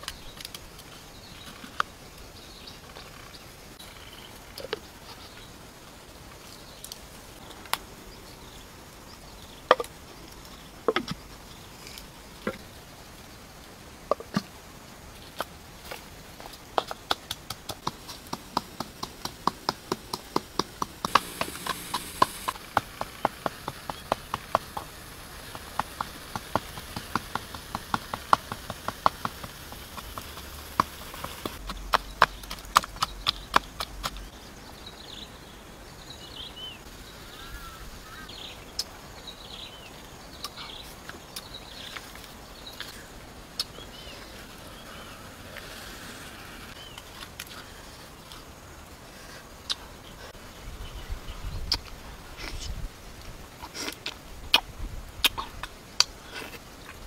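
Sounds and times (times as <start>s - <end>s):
pestle pounding in mortar: 16.8s - 34.1s.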